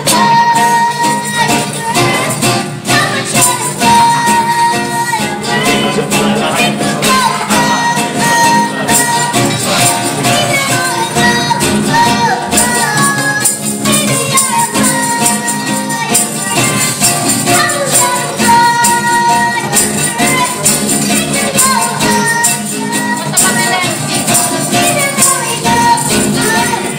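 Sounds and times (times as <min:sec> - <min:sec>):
girl singing pop song: 0:00.0 - 0:26.9
strummed acoustic guitar: 0:00.0 - 0:26.9.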